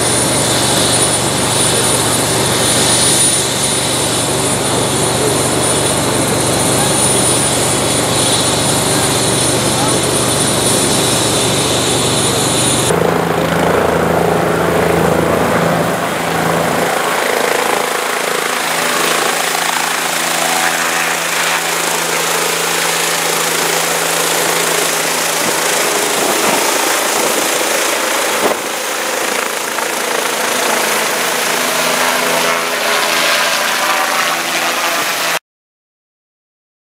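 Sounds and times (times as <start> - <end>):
helicopter engine and rotor: 0.0 - 35.4
high whine: 0.0 - 35.4.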